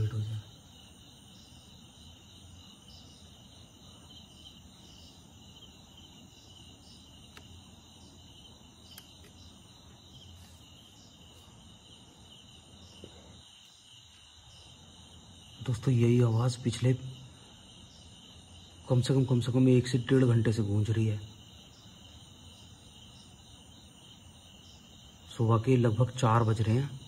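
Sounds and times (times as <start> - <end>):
crickets trilling: 0.0 - 27.0
faint clicks: 7.2 - 7.6, 8.8 - 9.4.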